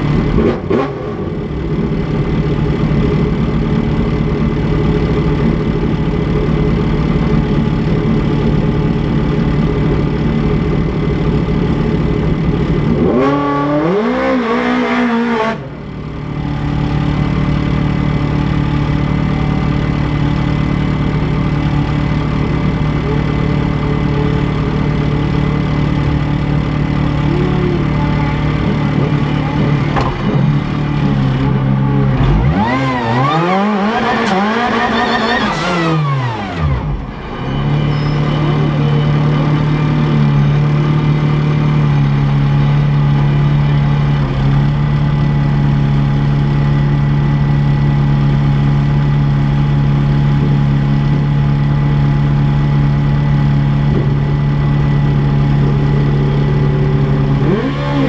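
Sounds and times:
engine revving: 0.0s - 2.0s, 11.4s - 41.8s, 53.4s - 58.0s
race car engine idling: 0.0s - 13.2s, 15.6s - 58.0s.

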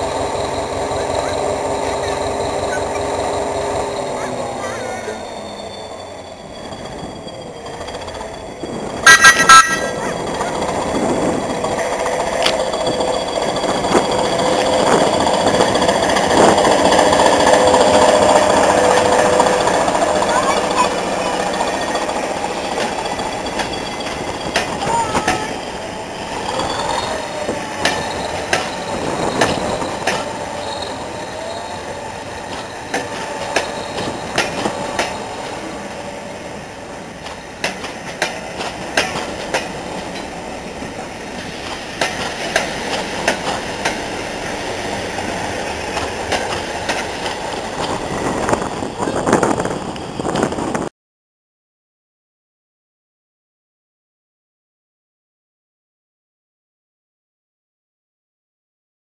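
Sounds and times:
train wheels clicking over rail joints: 6.7s - 50.9s.

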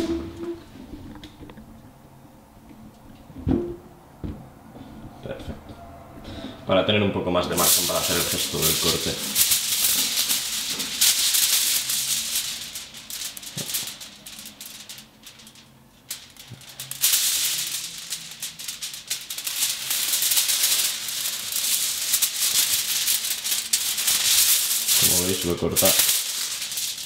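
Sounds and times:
kitchen foil crinkling: 7.4s - 27.0s.

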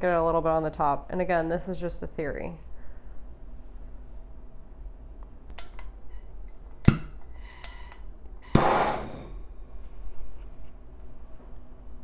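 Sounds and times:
flame hissing: 7.4s - 9.5s.

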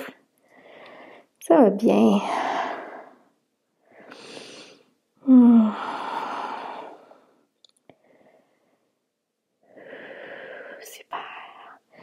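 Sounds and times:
woman breathing hard: 2.4s - 9.0s, 9.6s - 10.8s
woman sighing: 5.2s - 6.4s.

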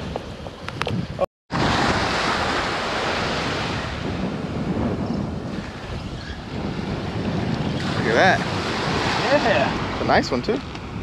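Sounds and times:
wind buffeting microphone: 0.0s - 11.0s
small surf breaking on sand: 7.2s - 10.9s.

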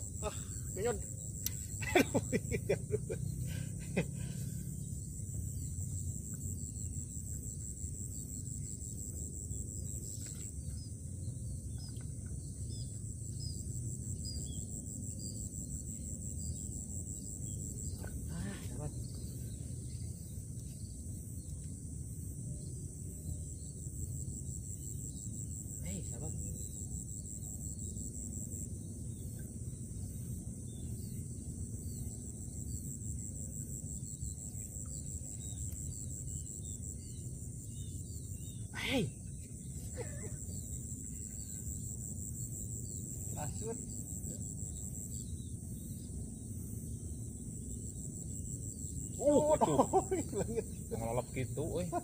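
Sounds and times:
high insect trill: 0.0s - 52.0s
faint bird chirps: 5.5s - 21.7s.

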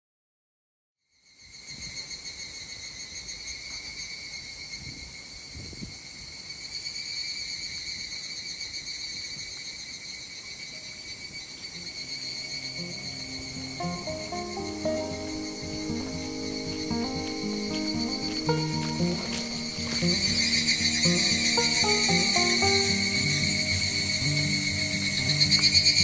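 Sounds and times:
cicadas trilling: 1.2s - 26.0s
soft music: 11.7s - 26.0s.

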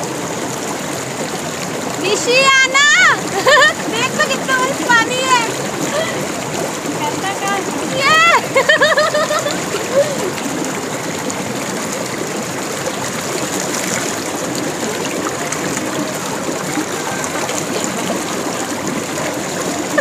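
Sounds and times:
stream rushing over rocks: 0.0s - 20.0s.

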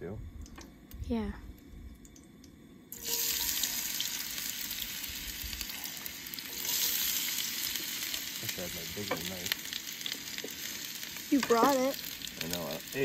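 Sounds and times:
food frying in a pan: 2.9s - 13.0s.

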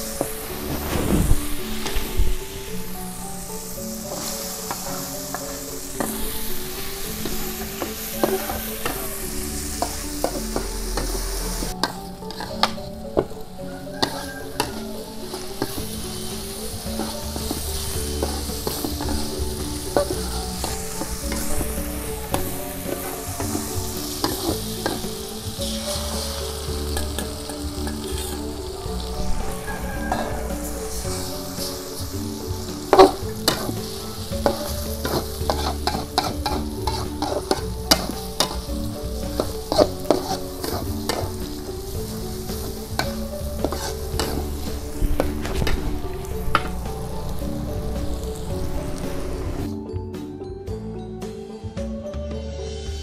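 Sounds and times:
food sizzling in oil: 0.0s - 49.8s
soft background music: 0.0s - 53.0s
metal spatula scraping pan: 4.1s - 13.3s, 13.9s - 28.7s, 29.3s - 46.9s.

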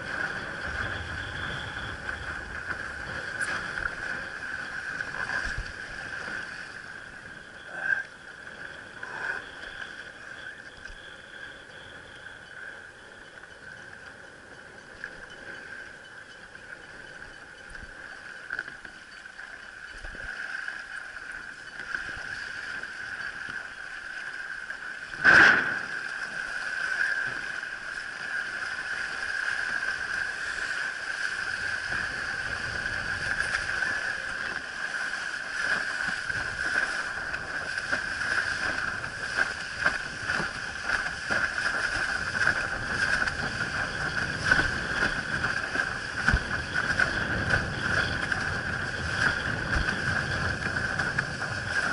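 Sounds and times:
water rushing and splashing: 0.0s - 51.9s.

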